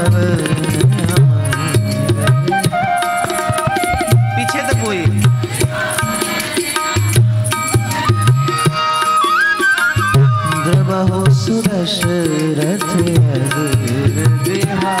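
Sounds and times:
tabla strokes: 0:00.0 - 0:15.0
melody instrument holding notes: 0:01.6 - 0:05.6.

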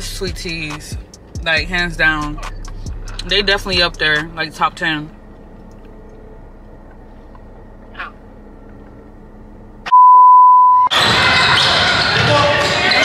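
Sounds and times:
car cabin hum: 0:00.0 - 0:10.9
high single-pitch test tone beep: 0:09.9 - 0:10.9
indoor basketball game noise: 0:10.9 - 0:13.0.

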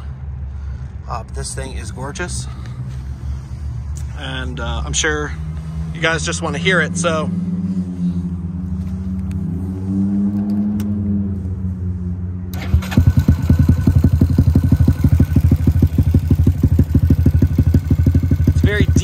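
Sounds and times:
motorcycle engine idling: 0:12.6 - 0:19.0.

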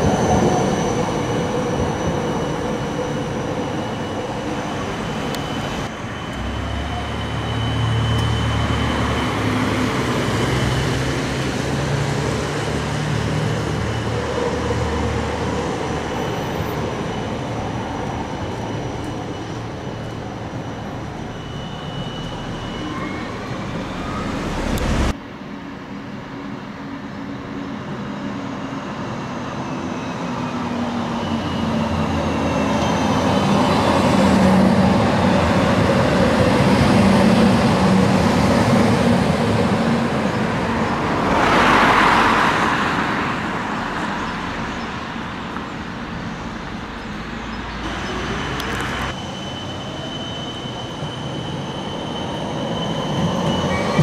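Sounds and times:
tram high whine: 0:00.0 - 0:54.0
tram rolling past: 0:00.0 - 0:54.0.

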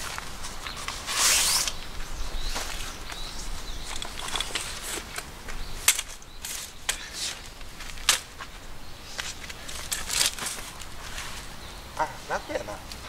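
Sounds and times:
fabric rustling and scraping: 0:00.0 - 0:01.8.

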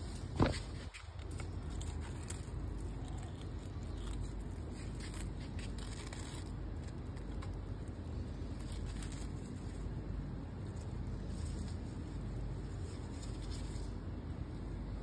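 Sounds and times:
scratching in soil and leaves: 0:00.0 - 0:14.4.

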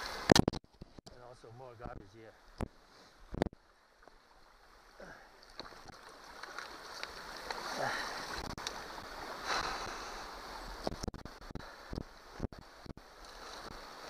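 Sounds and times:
running creek water: 0:00.0 - 0:00.4, 0:01.2 - 0:14.0.

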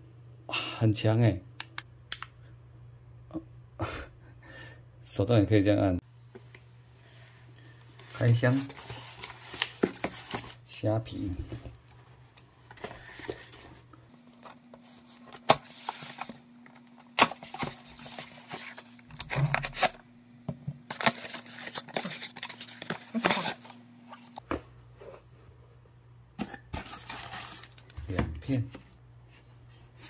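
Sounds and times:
faint steady hum: 0:00.0 - 0:30.0
tearing and rustling packaging: 0:08.1 - 0:10.6, 0:14.3 - 0:20.0, 0:20.9 - 0:24.4, 0:26.4 - 0:28.0.

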